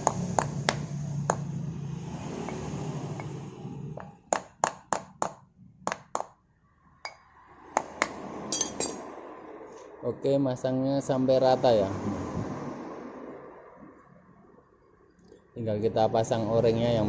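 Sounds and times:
metal tool tapping metal: 0:07.8 - 0:09.0.

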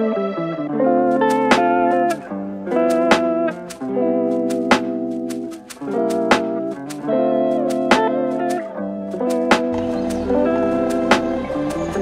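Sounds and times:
held chords: 0:00.0 - 0:12.0
sharp percussion hits: 0:01.2 - 0:08.6, 0:09.2 - 0:12.0.

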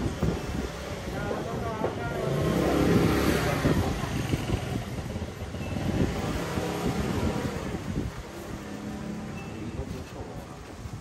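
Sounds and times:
people murmuring: 0:00.6 - 0:11.0
motor vehicle passing close by: 0:02.1 - 0:09.3.

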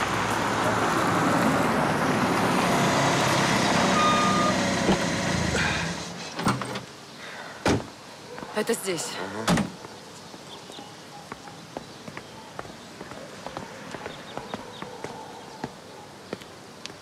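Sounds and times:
car engine and tyre noise: 0:00.0 - 0:07.0.

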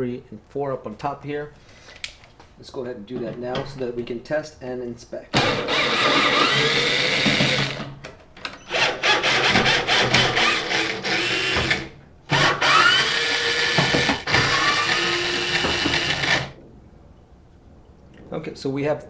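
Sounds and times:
cordless drill whirring: 0:05.4 - 0:07.8, 0:08.7 - 0:16.6.

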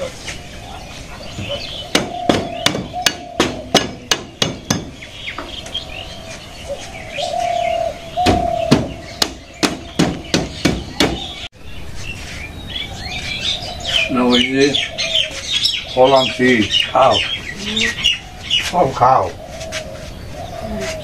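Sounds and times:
birds chirping: 0:00.0 - 0:21.0
machete knocking on bamboo: 0:01.9 - 0:05.0, 0:08.2 - 0:11.3.

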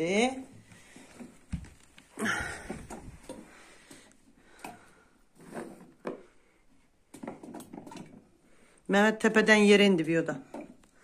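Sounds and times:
plastic jug being moved: 0:00.8 - 0:03.6, 0:04.6 - 0:06.4, 0:07.1 - 0:08.4.

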